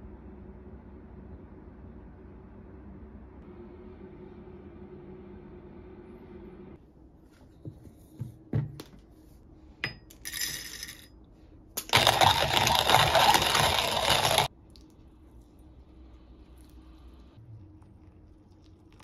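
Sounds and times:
coffee beans rattling into hopper: 0:11.8 - 0:14.5
coffee grinder grinding: 0:11.8 - 0:14.5.

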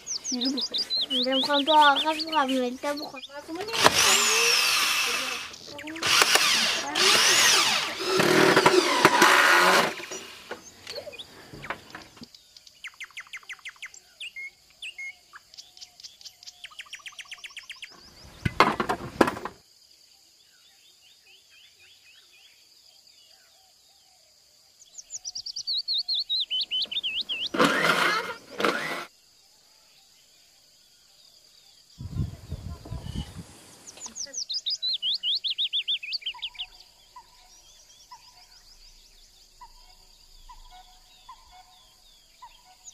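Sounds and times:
birds chirping and trilling: 0:00.0 - 0:19.5, 0:20.4 - 0:42.9
short bursts of noise: 0:03.5 - 0:10.7, 0:27.0 - 0:29.1
power drill running: 0:03.6 - 0:10.7, 0:27.3 - 0:29.1.

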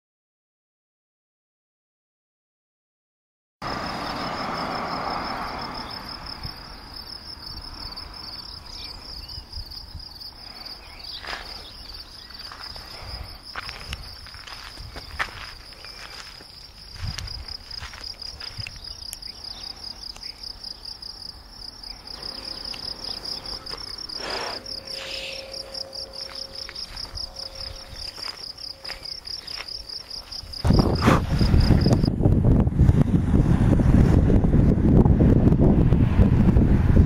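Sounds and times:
insects chirping trill: 0:03.6 - 0:32.2
wind buffeting microphone: 0:05.8 - 0:10.5, 0:11.9 - 0:20.0, 0:22.0 - 0:37.0.

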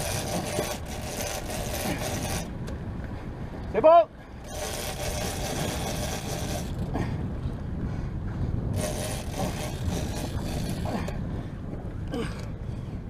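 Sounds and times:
boat motor rumbling: 0:00.0 - 0:13.0
wind buffeting microphone: 0:00.0 - 0:13.0.

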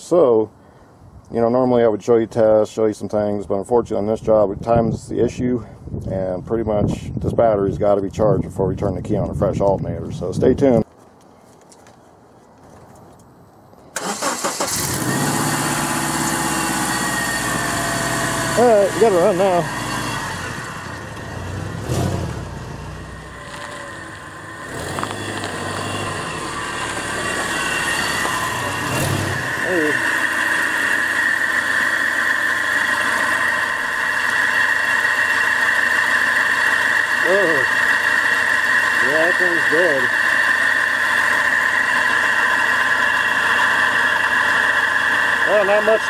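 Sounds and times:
car engine starting and idling: 0:13.9 - 0:46.0
high whine: 0:14.7 - 0:46.0.

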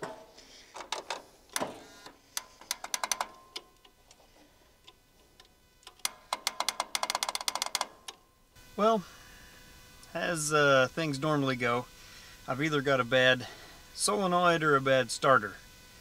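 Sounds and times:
starter solenoid clicking: 0:04.8 - 0:08.2.

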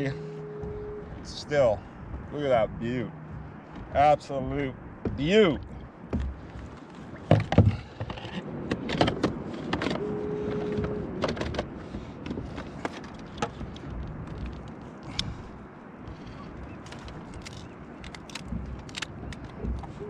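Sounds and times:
knocks and clatter on plastic deck: 0:02.0 - 0:10.0, 0:10.6 - 0:14.8.

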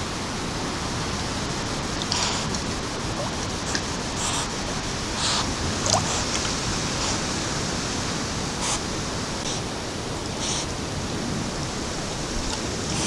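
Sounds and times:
microphone hiss: 0:00.0 - 0:13.0
otter splashing in water: 0:01.2 - 0:09.6.

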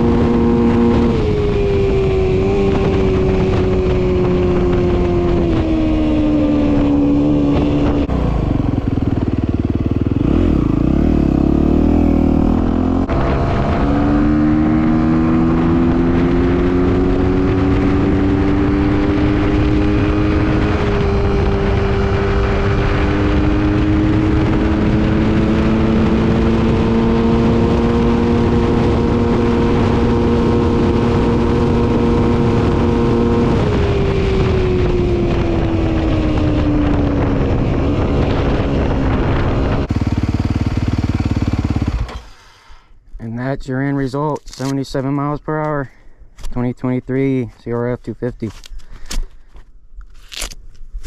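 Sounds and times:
motorcycle engine at full throttle: 0:00.0 - 0:42.9.

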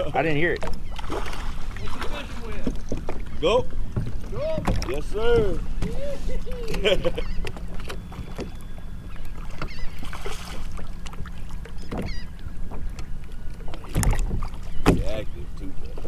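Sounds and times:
water lapping against kayak hull: 0:00.0 - 0:16.0
knocks on kayak: 0:13.9 - 0:15.2.

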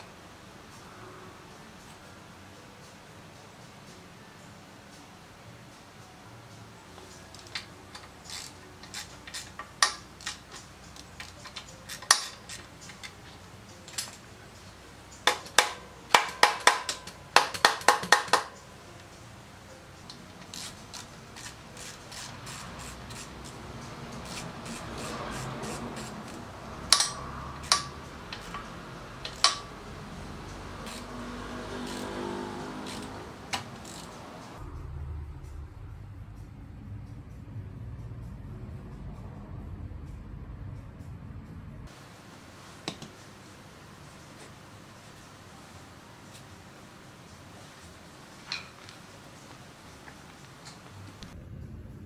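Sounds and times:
socket wrench clicking: 0:07.2 - 0:13.3, 0:15.1 - 0:18.6, 0:20.1 - 0:34.5.

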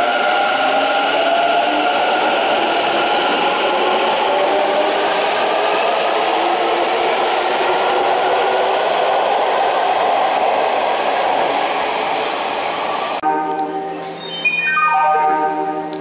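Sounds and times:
chiming tune: 0:13.2 - 0:16.0.

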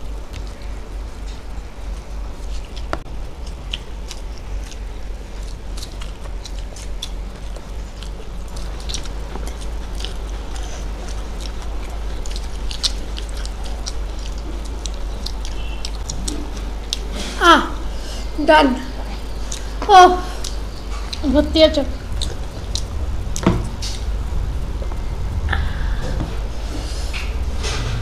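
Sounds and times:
low steady hum: 0:00.0 - 0:28.0
people chewing food: 0:00.0 - 0:28.0.

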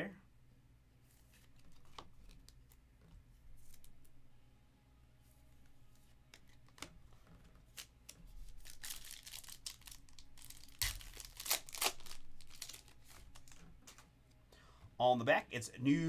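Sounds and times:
foil wrapper tearing and crinkling: 0:07.7 - 0:13.6.

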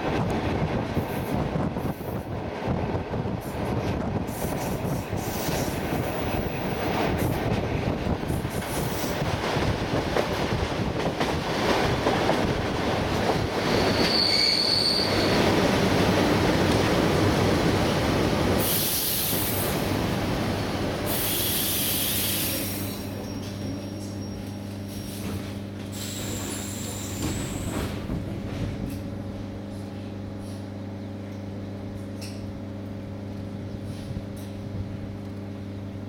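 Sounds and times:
train rolling noise: 0:00.0 - 0:35.7
air brake hisses: 0:21.1 - 0:23.1, 0:24.9 - 0:27.9.

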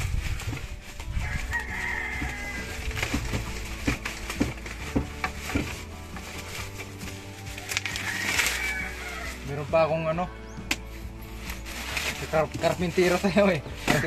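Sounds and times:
background music with a beat: 0:00.0 - 0:14.0
rooster crowing: 0:01.2 - 0:02.9, 0:07.6 - 0:09.4.

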